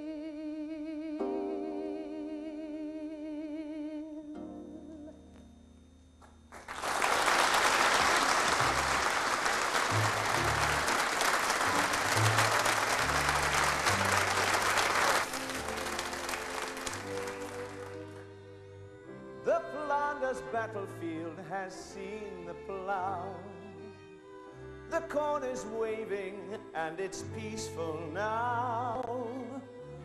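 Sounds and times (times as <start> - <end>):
audience applauding: 6.5 - 18.3
orchestra playing: 6.8 - 29.6.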